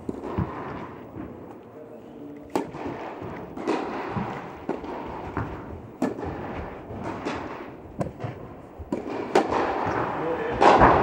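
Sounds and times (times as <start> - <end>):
racket strikes and ball bounces: 2.5 - 11.0.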